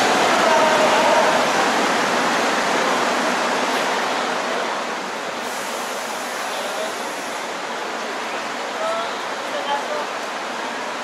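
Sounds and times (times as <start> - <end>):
subway train rushing rumble: 0.0 - 11.0.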